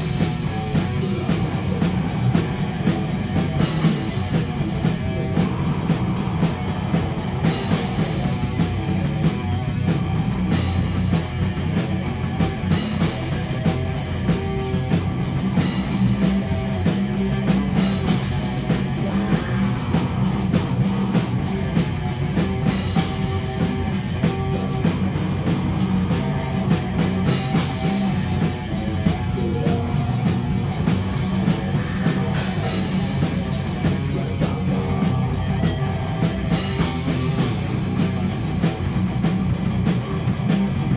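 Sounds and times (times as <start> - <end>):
drums and cymbals: 0.0 - 40.9
live rock music: 0.0 - 40.9.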